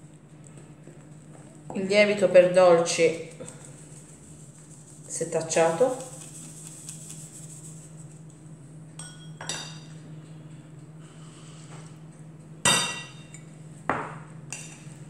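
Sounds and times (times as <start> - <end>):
metal spoon clinking on glass bowl: 9.0 - 9.8.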